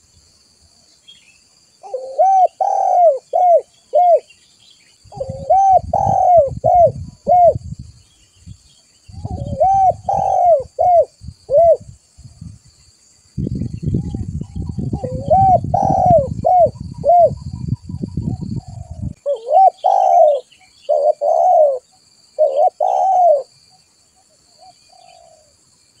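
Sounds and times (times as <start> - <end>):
dove cooing: 1.8 - 4.3, 5.1 - 7.6, 9.2 - 11.9, 14.0 - 23.6, 24.6 - 25.5.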